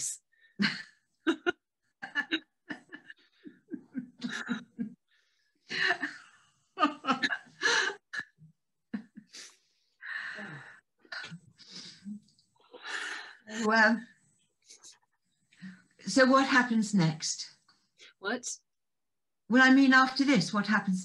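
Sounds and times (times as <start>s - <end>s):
women laughing: 0.6s - 5.0s, 5.7s - 8.2s.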